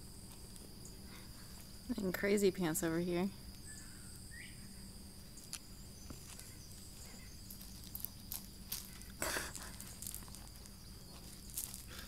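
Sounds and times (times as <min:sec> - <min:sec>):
high insect drone: 0:00.0 - 0:12.0
footsteps crunching on gravel: 0:05.4 - 0:12.0.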